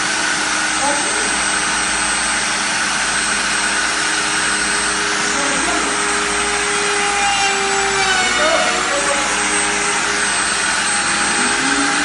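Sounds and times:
cutting machine humming: 0.0 - 12.0.

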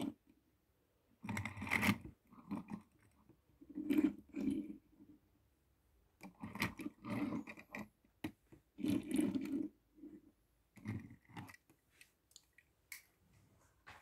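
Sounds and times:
toy cars scraping and clicking on wood: 1.2 - 5.2, 6.2 - 12.2.

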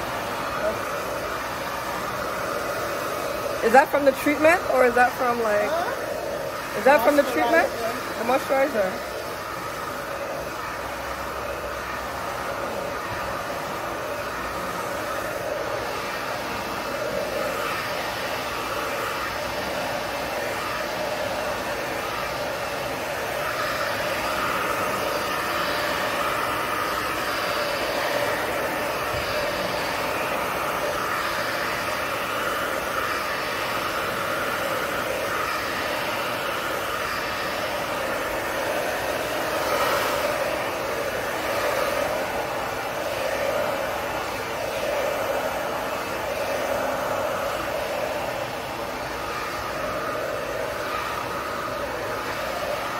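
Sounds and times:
hair dryer blowing: 0.0 - 52.9.

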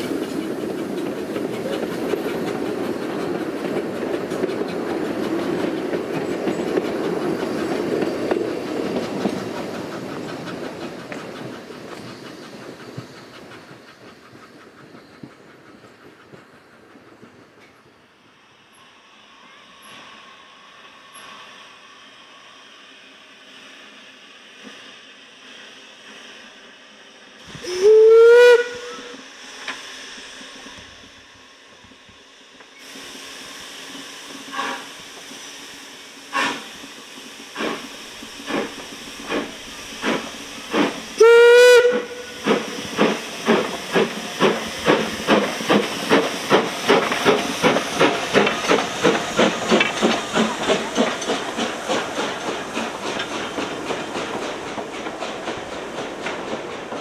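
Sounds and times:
steam hissing: 0.0 - 57.0
steam locomotive exhaust beats: 0.0 - 57.0
steam whistle: 27.5 - 29.3, 41.2 - 42.4.

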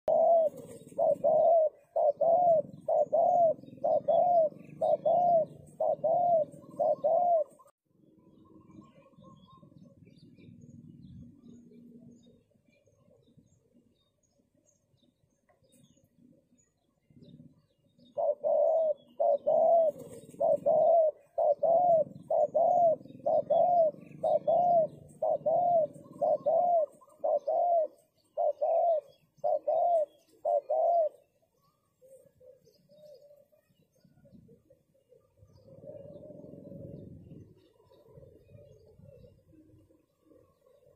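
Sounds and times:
dove cooing: 0.1 - 7.8, 15.9 - 40.9.

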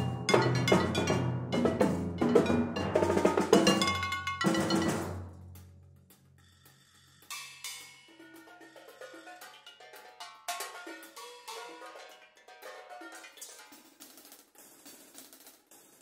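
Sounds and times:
sharp loud percussion hit: 0.0 - 5.4
percussion ensemble playing: 0.0 - 5.7, 7.2 - 14.2.

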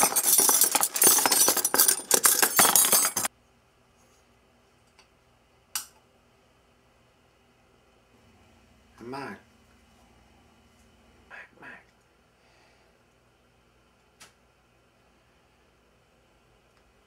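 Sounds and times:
clatter of hard objects: 0.0 - 3.3.

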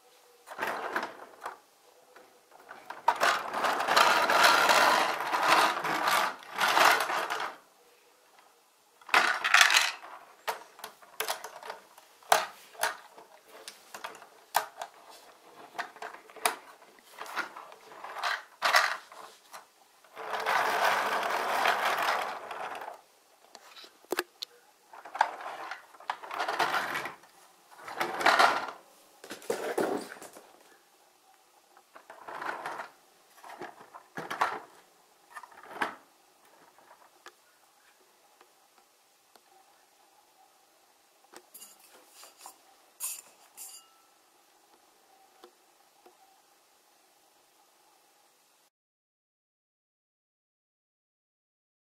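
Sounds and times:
toy wheels rolling on wood: 0.5 - 1.6, 2.5 - 7.7, 9.0 - 24.0, 24.9 - 30.7, 31.8 - 37.3
plastic pieces clicking: 9.0 - 15.0.

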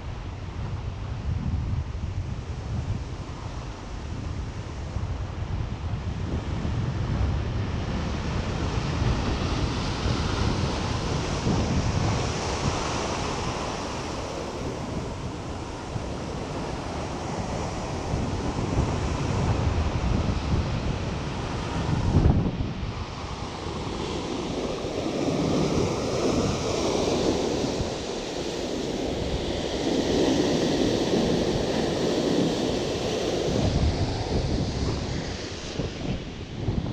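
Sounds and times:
wind buffeting microphone: 0.0 - 36.9
sea surf breaking on rocks: 9.5 - 36.9.

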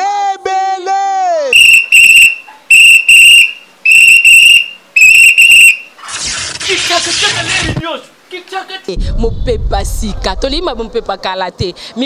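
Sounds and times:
shrill whistle blasts: 1.5 - 6.0
noisy rush: 9.0 - 11.5.

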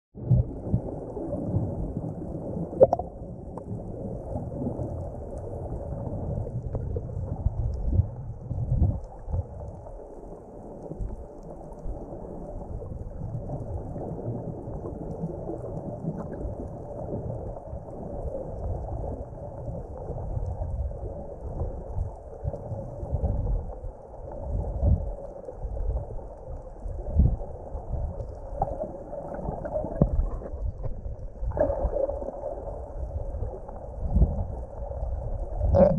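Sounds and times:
underwater rumbling and sloshing: 0.2 - 35.9.

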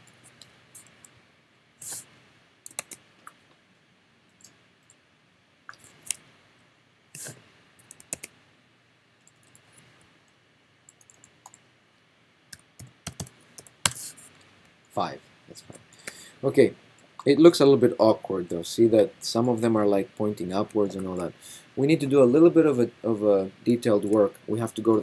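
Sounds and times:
mouse and keyboard clicks: 2.7 - 3.4, 7.2 - 8.3.

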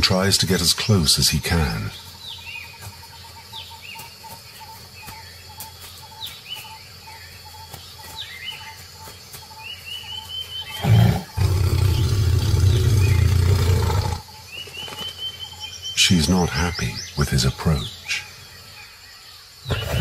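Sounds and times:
birds chirping: 0.0 - 20.0
tiger growling: 10.7 - 14.3, 19.7 - 20.0.

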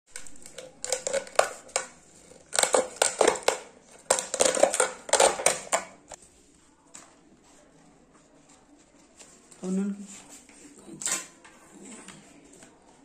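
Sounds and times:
plastic bottle crackling: 0.1 - 6.2.

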